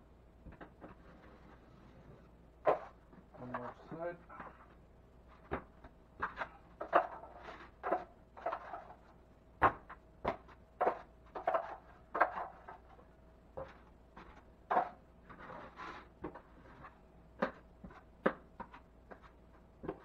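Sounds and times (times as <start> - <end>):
drywall knife scraping: 14.8 - 16.9.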